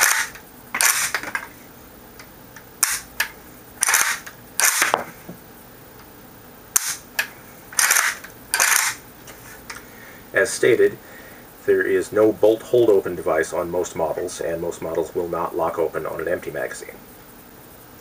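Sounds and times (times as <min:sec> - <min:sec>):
rifle action metallic clacks: 0:06.8 - 0:09.0.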